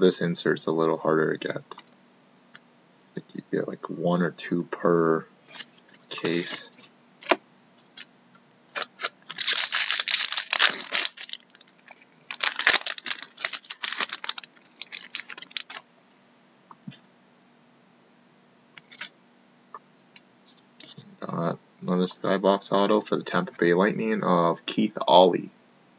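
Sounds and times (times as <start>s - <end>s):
cards and wrapper crackling: 8.7s - 15.8s.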